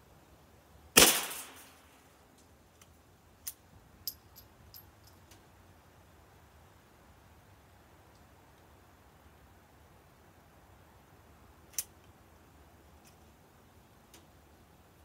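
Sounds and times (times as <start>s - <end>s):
suppressed rifle shot: 1.0s - 1.8s.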